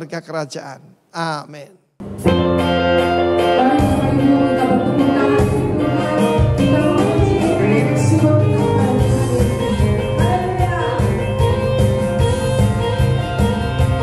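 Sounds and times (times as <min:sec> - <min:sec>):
bass line: 0:02.0 - 0:14.0
keyboard chords: 0:02.0 - 0:14.0
woman singing into a microphone: 0:03.4 - 0:12.6.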